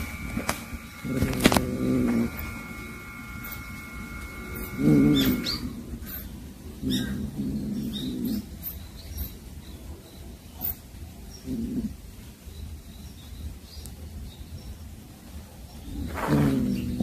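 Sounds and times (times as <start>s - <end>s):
cat growling: 1.0s - 2.6s, 4.5s - 6.0s, 11.4s - 12.0s, 16.0s - 17.0s.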